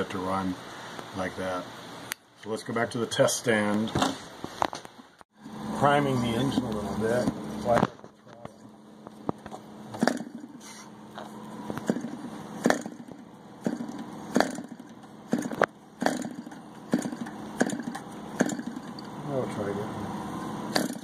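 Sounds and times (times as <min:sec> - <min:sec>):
model engine propeller strikes: 0:09.9 - 0:10.6, 0:11.7 - 0:19.0, 0:20.7 - 0:21.0.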